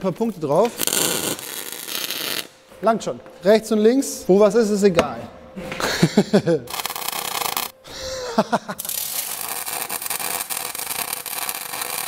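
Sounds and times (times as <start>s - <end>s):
welding arc crackling: 0.0s - 2.6s, 6.7s - 7.8s, 8.8s - 12.0s.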